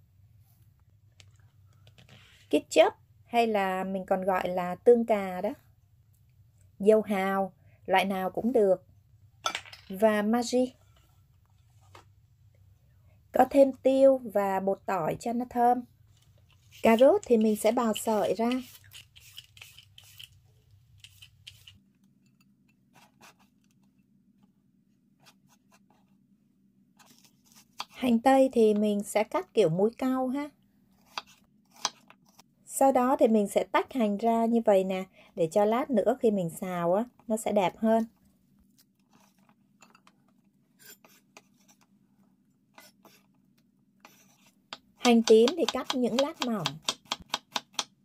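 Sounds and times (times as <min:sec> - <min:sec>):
peeler scraping carrot: 0:16.7 - 0:20.4, 0:21.0 - 0:21.8
faint scratches and clicks: 0:21.0 - 0:24.5, 0:38.7 - 0:41.9.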